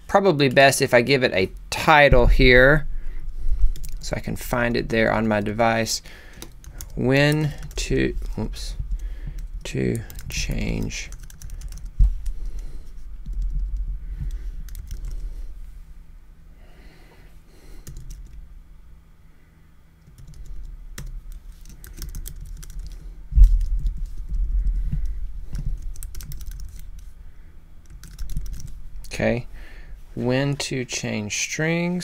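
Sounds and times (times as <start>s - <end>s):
typing on touchscreen: 11.1s - 11.9s, 20.1s - 23.0s, 25.8s - 26.9s, 27.9s - 28.7s.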